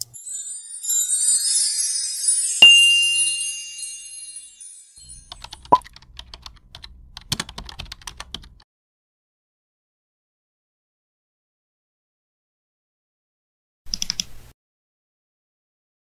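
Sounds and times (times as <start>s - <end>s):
glittery chime shimmer: 0.0s - 5.7s
bright ding: 0.1s - 5.3s.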